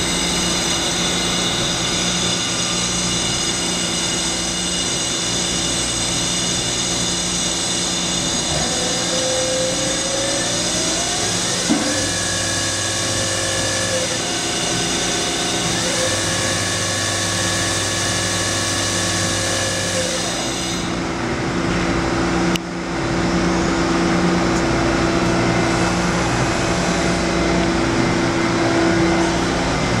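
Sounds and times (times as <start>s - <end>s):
lathe spindle whining: 0.0s - 21.0s.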